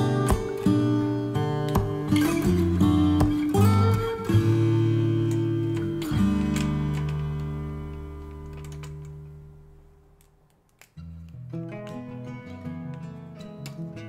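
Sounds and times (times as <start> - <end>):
acoustic guitar chords strummed: 0.0 - 9.8.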